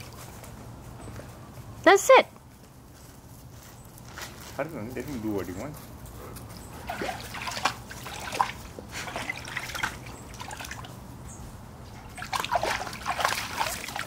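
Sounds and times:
dog splashing in water: 0:06.8 - 0:11.0, 0:11.9 - 0:14.0
water pouring off dog: 0:06.8 - 0:11.0, 0:12.0 - 0:14.0.

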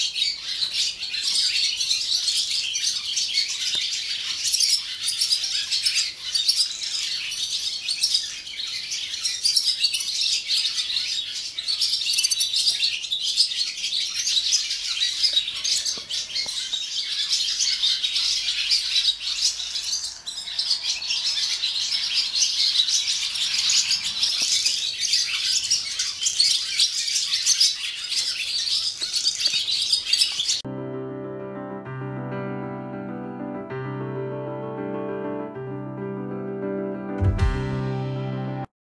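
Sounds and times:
swallows twittering and chirping: 0:00.0 - 0:30.6.

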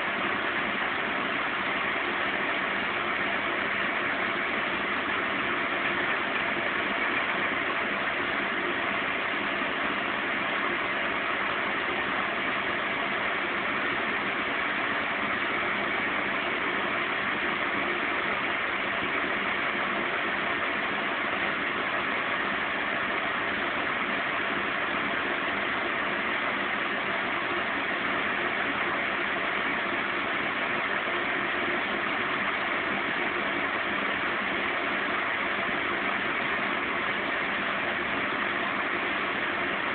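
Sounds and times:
washing machine spinning whir: 0:00.0 - 0:39.9.

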